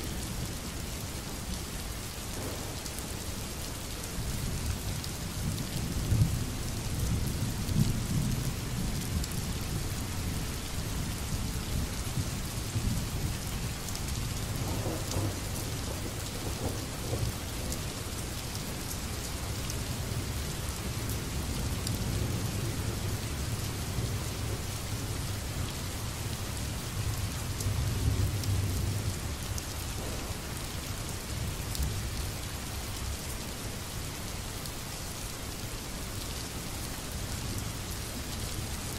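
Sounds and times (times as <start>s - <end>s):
steady rain: 0.0s - 38.9s
low rolling thunder: 2.3s - 2.9s, 14.5s - 17.8s, 30.0s - 30.8s.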